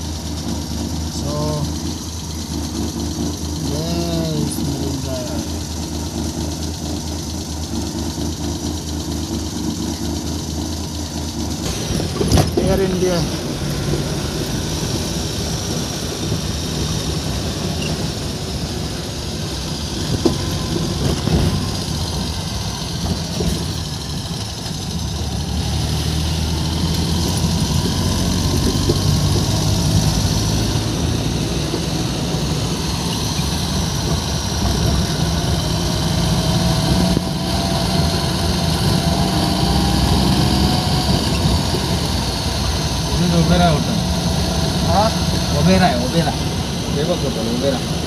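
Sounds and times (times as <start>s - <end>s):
car engine and road noise: 0.0s - 48.0s.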